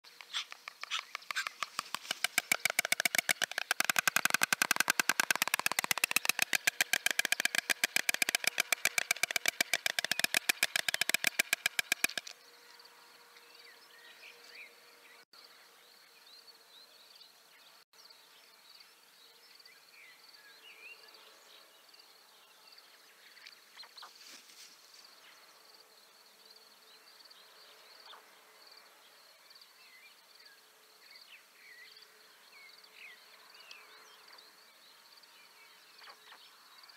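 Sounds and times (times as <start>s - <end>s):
storks bill-clattering: 0.1s - 12.3s.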